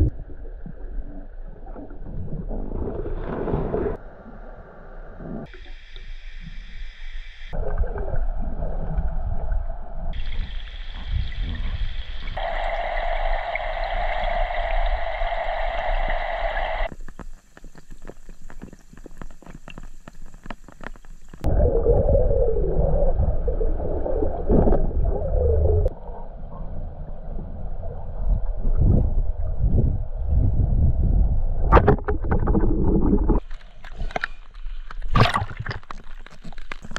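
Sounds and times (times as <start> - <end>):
muffled underwater gurgling: 7.5 - 16.9, 20.5 - 27.1.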